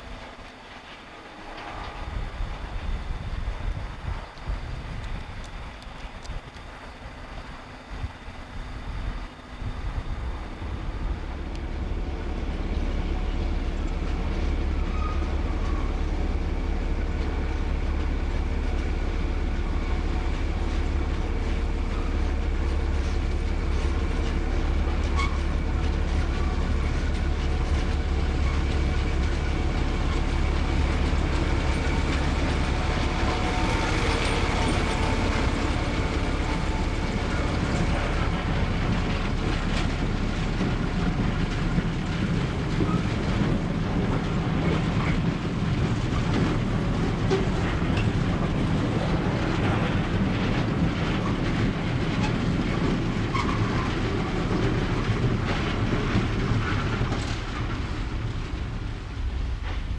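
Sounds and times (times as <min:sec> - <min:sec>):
diesel locomotive engine hum: 0:00.0 - 0:59.9
wagon wheels clicking over rail joints: 0:18.0 - 0:59.9.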